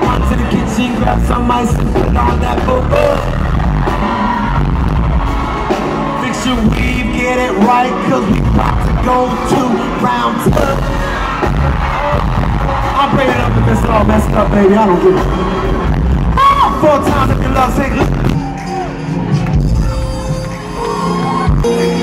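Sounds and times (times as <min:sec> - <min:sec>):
man singing with band: 0:00.0 - 0:03.6, 0:06.2 - 0:11.2.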